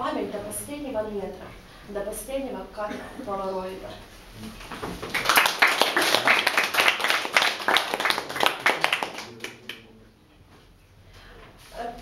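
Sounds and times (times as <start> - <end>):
audience applauding: 4.9 - 9.9.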